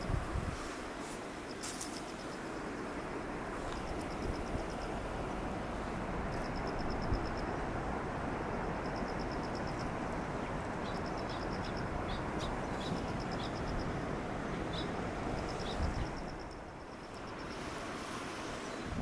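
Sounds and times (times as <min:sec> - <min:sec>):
wind on microphone: 0:00.0 - 0:01.0, 0:15.0 - 0:16.6, 0:17.5 - 0:19.0.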